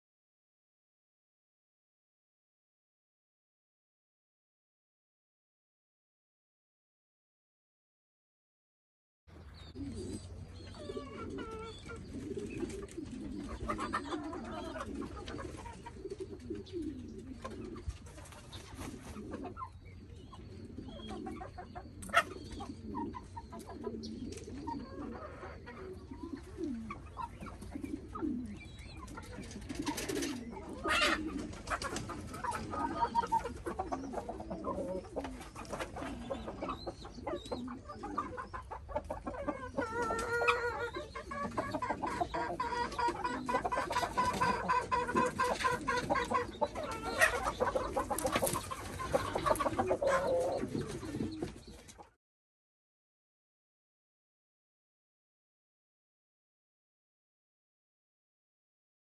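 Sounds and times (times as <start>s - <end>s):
chickens clucking: 9.3s - 52.2s.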